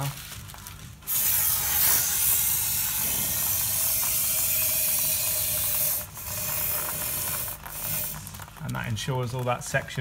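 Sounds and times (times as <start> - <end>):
spray gun spraying: 1.1 - 8.2.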